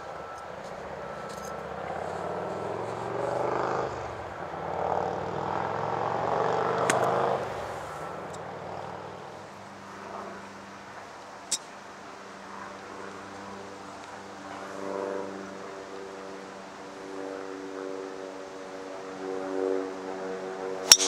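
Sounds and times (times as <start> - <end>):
vehicle engine: 0.0 - 9.5.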